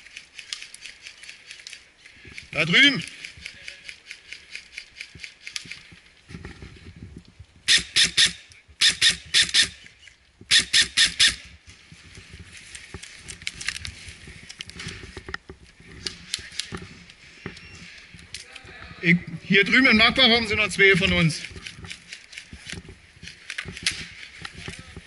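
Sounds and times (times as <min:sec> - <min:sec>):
airsoft rifle shots: 0:07.7 - 0:09.8, 0:10.5 - 0:11.4.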